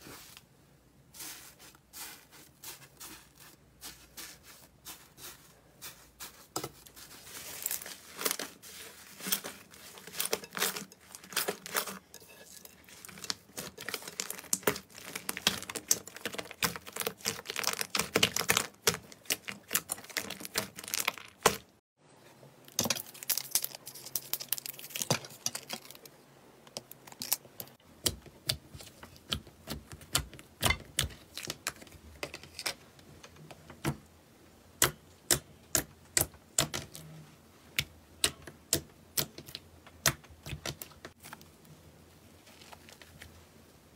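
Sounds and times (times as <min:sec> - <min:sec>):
slime crackling and popping: 0:13.0 - 0:21.6.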